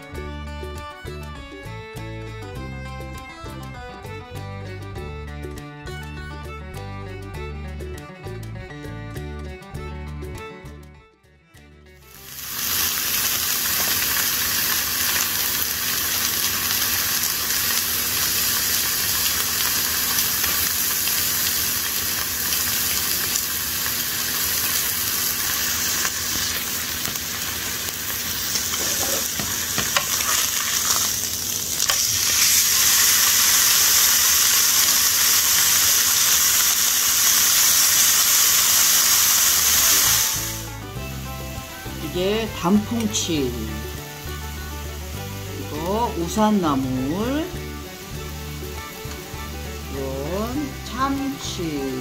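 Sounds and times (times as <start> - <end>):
beef sizzling on a griddle: 12.0 - 52.0.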